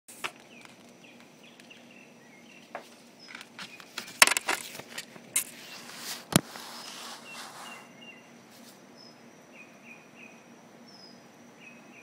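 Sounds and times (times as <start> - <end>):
harsh bird calls: 6.8 - 12.0.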